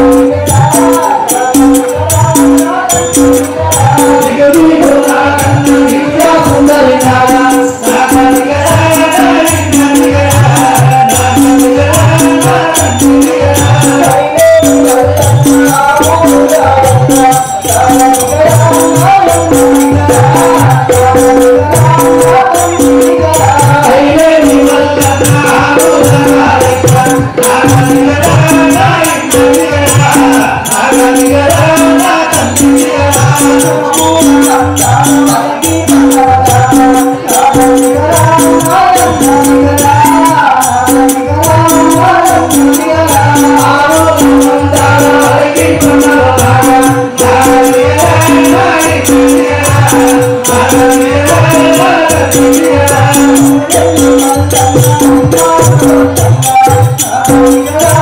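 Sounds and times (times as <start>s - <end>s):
jingling rattle percussion: 0.0s - 58.0s
man singing: 0.0s - 58.0s
steady drum beat: 0.0s - 58.0s.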